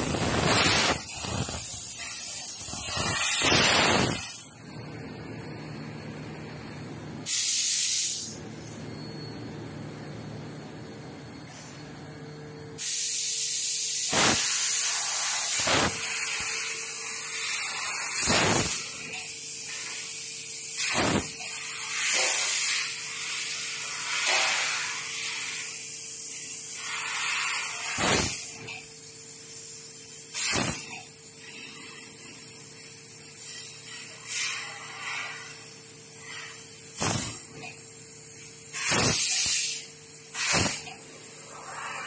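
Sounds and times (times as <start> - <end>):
sharp cracks of laser cutting: 0.0 - 1.8, 2.6 - 4.4, 14.1 - 16.7, 17.4 - 19.1, 20.8 - 22.8, 24.1 - 25.0, 27.5 - 28.5, 30.3 - 30.9, 36.2 - 37.5, 38.7 - 40.9
hiss of assist gas: 0.0 - 4.6, 7.3 - 8.4, 12.8 - 42.0
steady machine hum: 0.0 - 7.3, 8.2 - 12.8.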